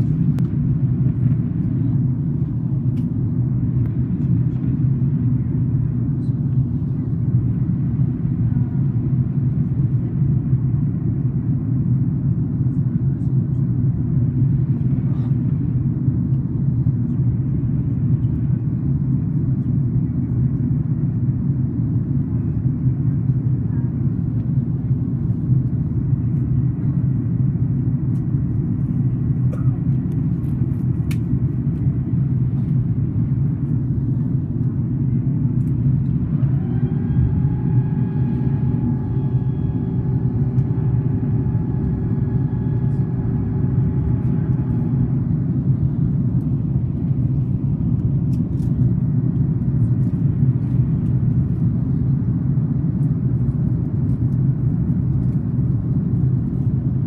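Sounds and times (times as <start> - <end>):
airliner engine rumble: 0.0 - 57.0
mechanical whine: 35.4 - 47.5.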